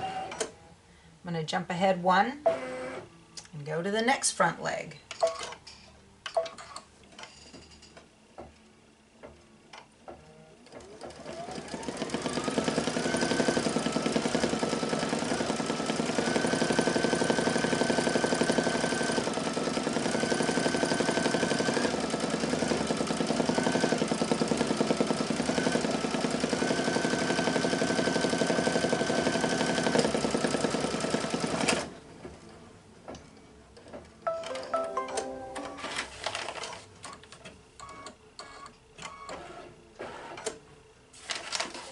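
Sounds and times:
embroidery machine stitching: 0:10.7 - 0:31.9.

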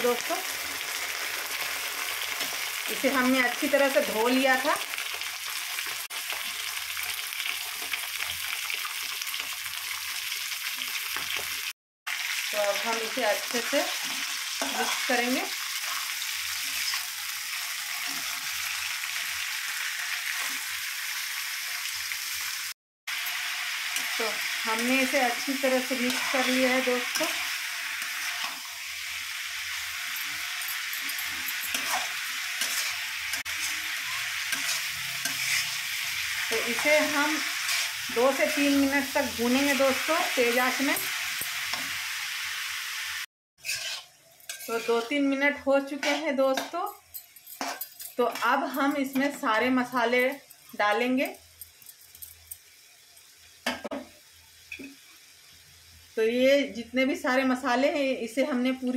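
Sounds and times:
meat sizzling in oil: 0:00.0 - 0:58.9
spatula scraping wok: 0:13.2 - 0:21.4, 0:23.1 - 0:49.4.

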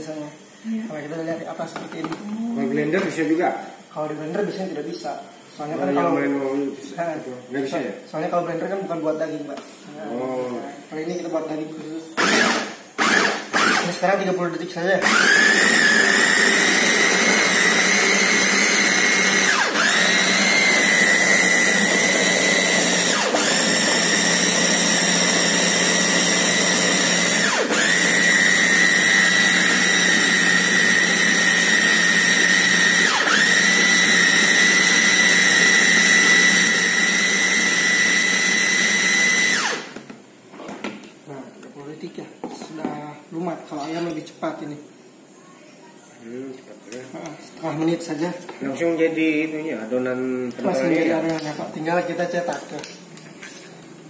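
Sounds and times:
electric chopper motor whine: 0:10.2 - 0:40.0.

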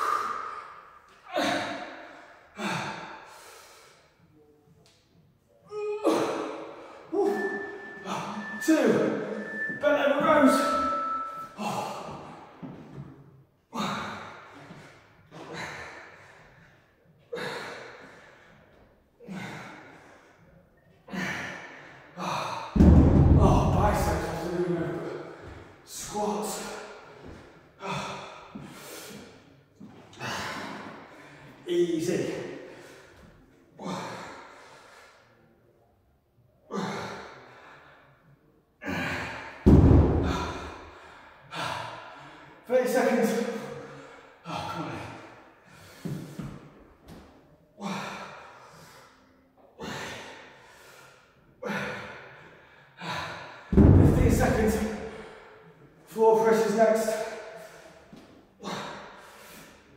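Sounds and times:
deep thump: 0:22.8 - 0:24.2, 0:39.7 - 0:40.8, 0:53.8 - 0:54.6
man exhaling forcefully: 0:38.9 - 0:41.7.

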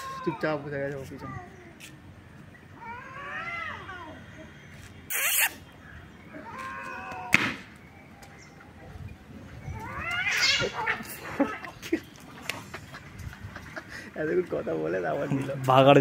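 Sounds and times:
cat screeching yowl: 0:02.8 - 0:04.2, 0:06.4 - 0:07.4, 0:09.7 - 0:11.6
cats yowling: 0:02.8 - 0:04.5, 0:06.3 - 0:07.4, 0:09.5 - 0:11.8
cat hissing: 0:05.1 - 0:05.6.

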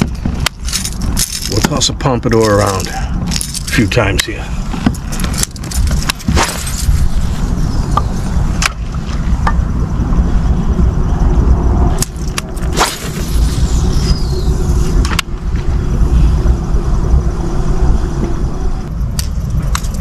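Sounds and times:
faint hum: 0:00.0 - 0:20.0
low rumble: 0:00.0 - 0:20.0.

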